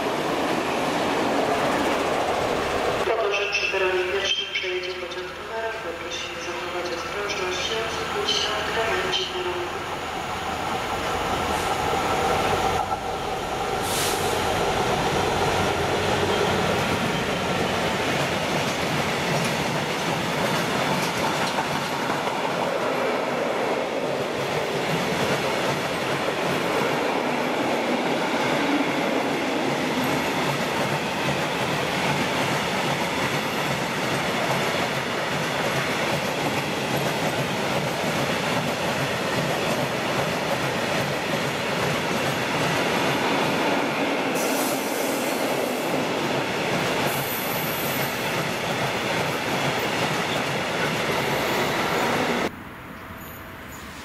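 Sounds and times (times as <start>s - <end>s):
train wheels rolling on rails: 0.0s - 5.5s, 6.1s - 52.5s.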